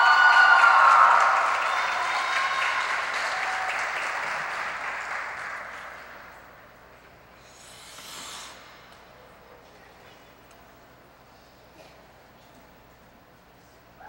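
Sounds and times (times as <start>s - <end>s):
audience applauding: 0.0s - 6.6s
short hiss: 7.4s - 9.2s.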